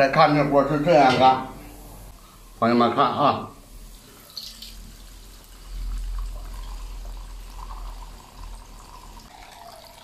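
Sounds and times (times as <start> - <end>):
oil pouring through strainer: 3.9 - 10.0.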